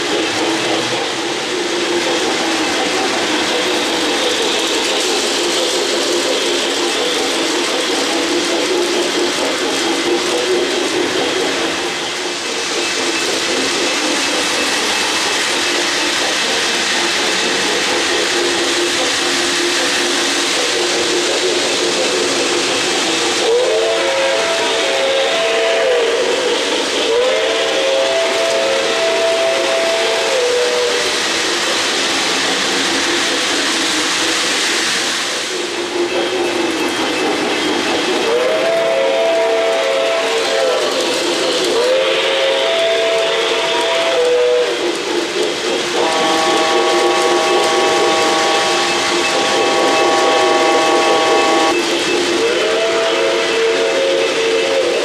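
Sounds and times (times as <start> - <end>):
model trains rumbling and whirring: 0.0 - 55.0
steam whistle: 23.4 - 31.2, 38.2 - 41.0, 41.7 - 44.8, 45.9 - 55.0.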